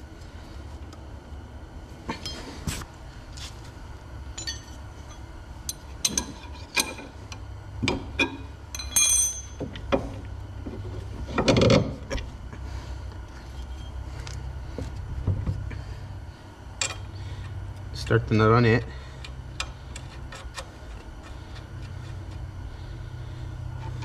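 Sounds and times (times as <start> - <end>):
metal parts clinking and knocking: 4.4 - 5.2, 8.2 - 9.8.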